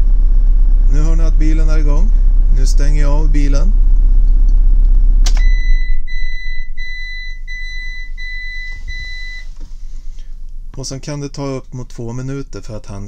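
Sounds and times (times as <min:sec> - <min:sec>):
engine running: 0:00.0 - 0:07.0
ignition switch click: 0:05.2 - 0:05.8
high-pitched warning chime beeps: 0:05.4 - 0:09.5.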